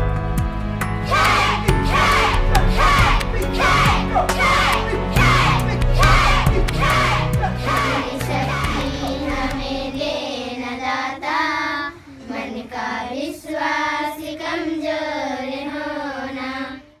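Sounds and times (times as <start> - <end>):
low backing music: 0.0 - 10.2
girls singing in unison: 1.0 - 17.0.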